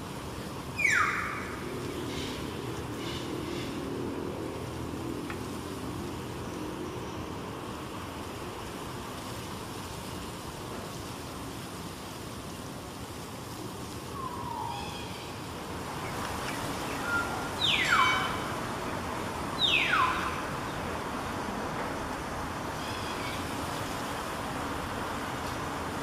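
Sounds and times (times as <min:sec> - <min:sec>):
traffic hum: 0:00.0 - 0:26.0
mynas calling shrilly: 0:00.8 - 0:02.4, 0:14.1 - 0:15.4, 0:16.4 - 0:20.6.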